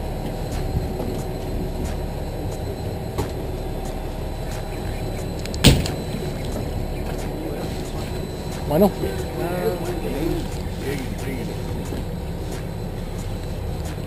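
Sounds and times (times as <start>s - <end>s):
boat engine running: 0.0s - 14.0s.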